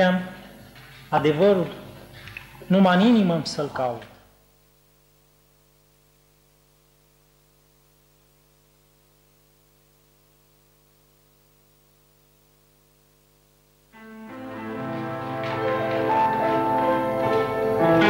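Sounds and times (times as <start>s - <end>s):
faint electrical hum with hiss: 0.0s - 18.0s.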